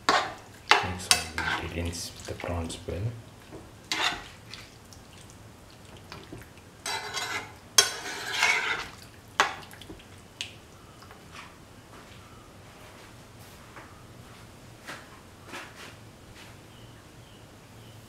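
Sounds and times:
spoon scraping and knocking pan: 0.0s - 2.8s, 3.5s - 4.4s, 6.2s - 9.6s.

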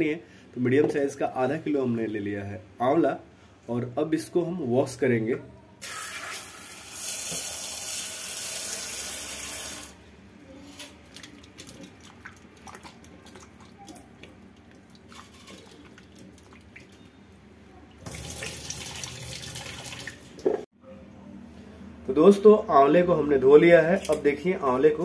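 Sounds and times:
tap water running into steel bowl: 5.8s - 9.8s
water sloshing: 10.9s - 17.3s.

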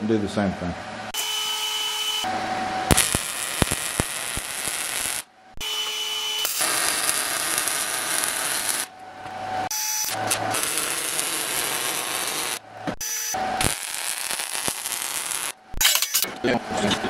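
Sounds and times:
welding arc crackling: 2.9s - 5.3s, 6.4s - 8.9s, 9.7s - 15.6s.

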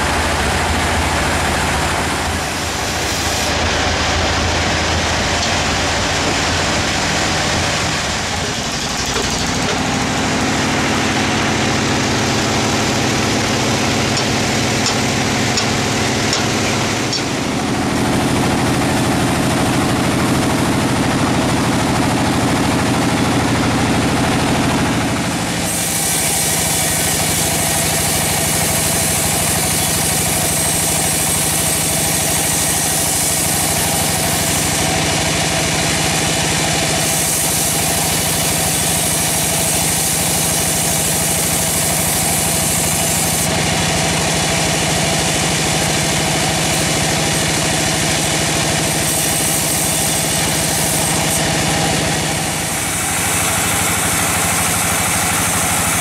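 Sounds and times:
sawmill machine hum: 0.0s - 56.0s
saw blade ripping through log: 45.4s - 56.0s.

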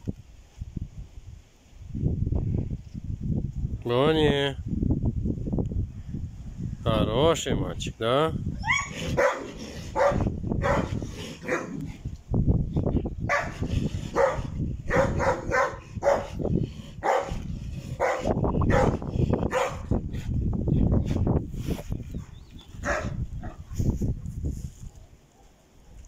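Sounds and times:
large dogs barking: 8.7s - 12.0s, 13.3s - 20.1s, 22.8s - 23.7s.

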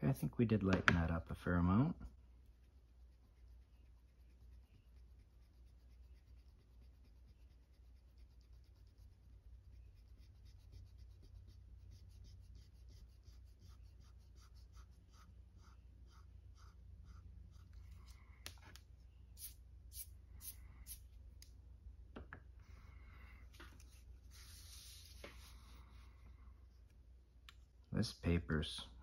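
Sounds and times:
eraser rubbing on paper: 2.4s - 18.2s, 19.4s - 21.0s, 23.8s - 25.9s
paper scraping: 23.5s - 25.8s.

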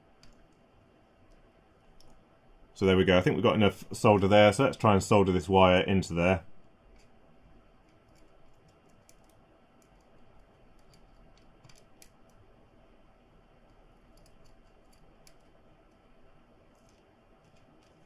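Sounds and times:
faint small clicks: 0.2s - 2.2s, 7.8s - 12.4s, 13.6s - 16.1s.

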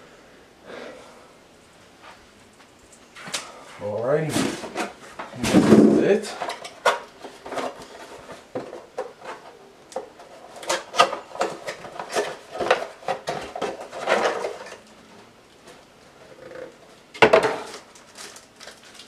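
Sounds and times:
packaging rustling: 17.6s - 19.0s.

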